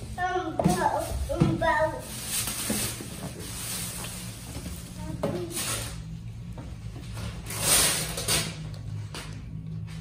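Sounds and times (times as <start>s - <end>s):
wrapping paper rustling and tearing: 0.8s - 6.2s, 7.4s - 8.6s.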